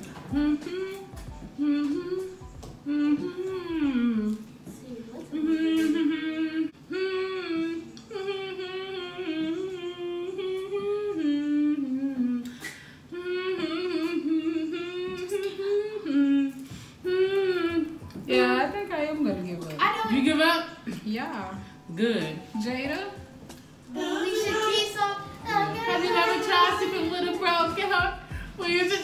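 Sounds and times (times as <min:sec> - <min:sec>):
woman humming: 0:00.0 - 0:04.7, 0:05.3 - 0:18.7, 0:23.9 - 0:24.8.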